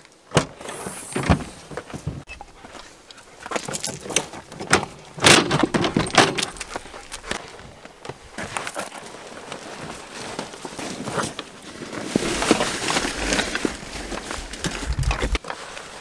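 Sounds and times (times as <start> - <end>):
wire crate door rattling open: 4.6 - 6.6.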